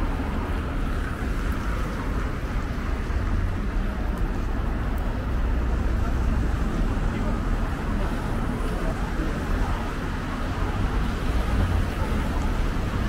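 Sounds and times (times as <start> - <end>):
passing cars rumbling: 0.0 - 13.0
road noise: 0.0 - 13.0.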